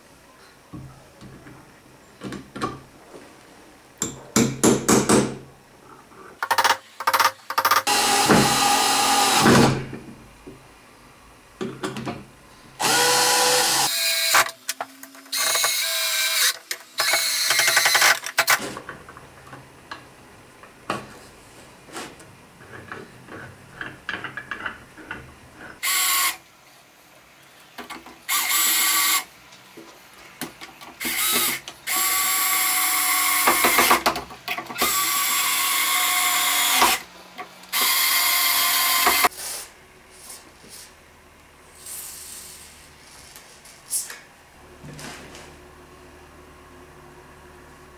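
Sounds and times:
cordless drill running: 7.9s - 9.5s, 12.8s - 14.4s, 34.8s - 37.0s, 37.7s - 39.3s.

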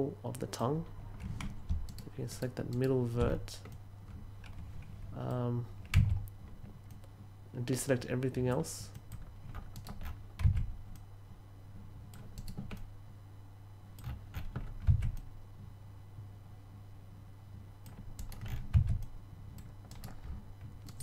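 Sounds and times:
low steady hum: 0.0s - 21.0s
keyboard and mouse clicks: 8.9s - 11.1s, 12.1s - 12.9s, 14.0s - 15.3s, 17.8s - 21.0s.

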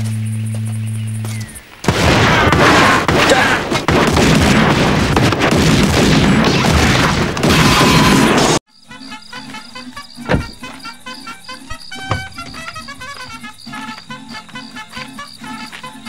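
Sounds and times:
booms and crashing impacts: 1.8s - 8.6s
rapid pistol gunfire: 1.9s - 7.5s.

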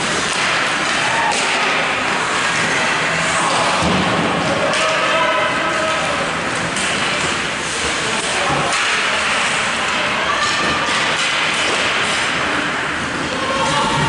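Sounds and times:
faint shouting voices: 8.0s - 11.2s, 13.1s - 14.0s.

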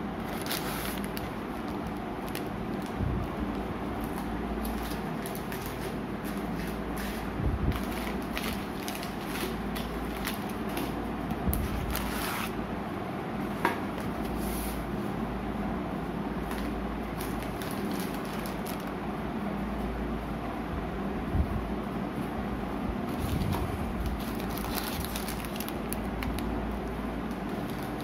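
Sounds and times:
steady low hum: 0.0s - 28.0s
plastic wrappers crinkling: 0.2s - 12.5s, 16.4s - 19.0s, 23.1s - 28.0s.

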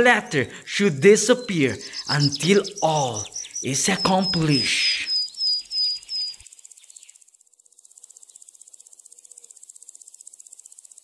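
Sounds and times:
bird high chirps: 0.0s - 7.2s
insects chirring: 0.0s - 11.0s.

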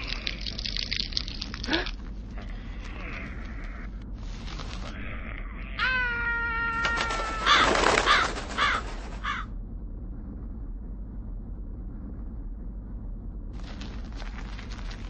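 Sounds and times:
crackling hiss: 0.0s - 5.6s, 13.6s - 15.0s
crow cawing: 5.1s - 9.5s.

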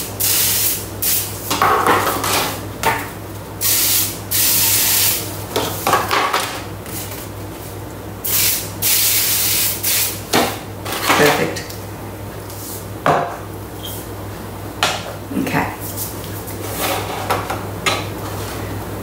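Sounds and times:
aerosol spray hissing: 8.2s - 10.2s.

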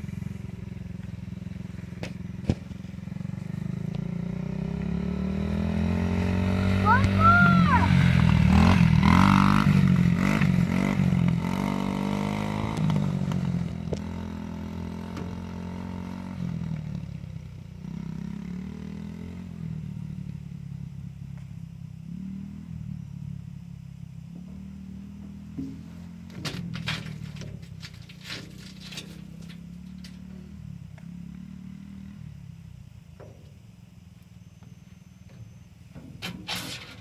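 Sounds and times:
dirt bike engine revving: 0.0s - 16.8s, 17.8s - 19.9s.

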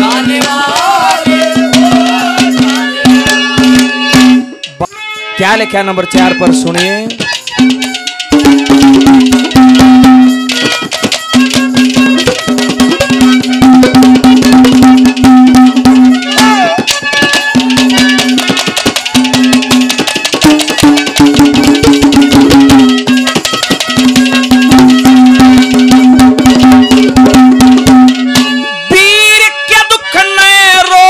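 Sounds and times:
man singing: 0.0s - 3.0s
hand drums fast rhythm: 0.0s - 4.8s, 6.2s - 28.6s
held melody note: 0.0s - 31.0s.

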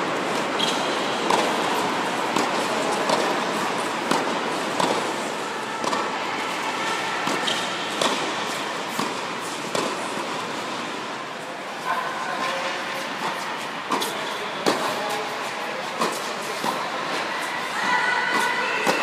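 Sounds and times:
tennis ball hit and bouncing: 0.3s - 6.6s, 7.2s - 10.8s, 13.2s - 15.1s, 16.0s - 16.8s, 18.3s - 19.0s.

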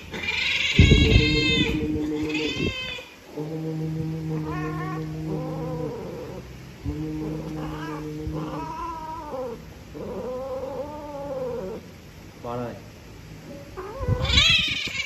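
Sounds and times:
cats yowling: 0.0s - 3.2s, 4.4s - 6.4s, 7.2s - 11.8s, 13.6s - 15.0s.

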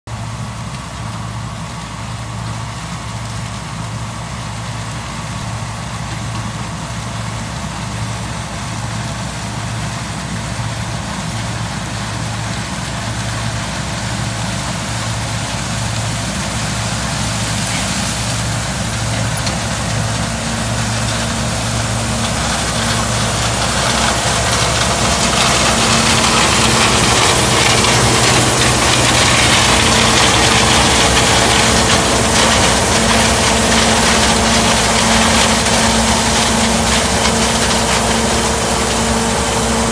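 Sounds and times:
combine harvester engine drone: 0.1s - 39.9s
machinery hiss and rattle: 12.1s - 39.9s.

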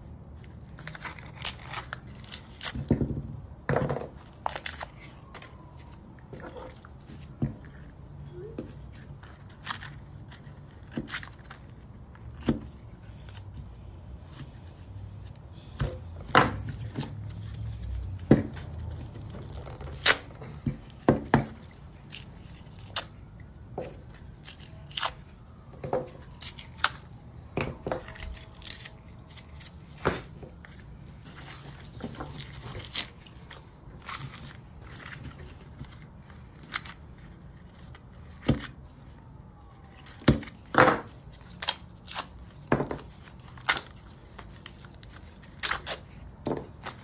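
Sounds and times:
cardboard ripping and snapping: 0.4s - 3.2s, 14.2s - 23.3s, 24.2s - 25.4s, 26.1s - 30.8s, 31.4s - 38.8s, 39.8s - 47.0s.

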